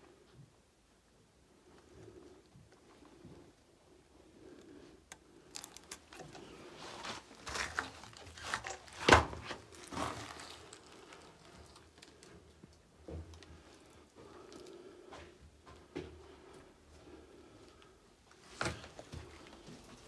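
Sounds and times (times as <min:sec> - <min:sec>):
rubble crunching underfoot: 0:05.4 - 0:14.7.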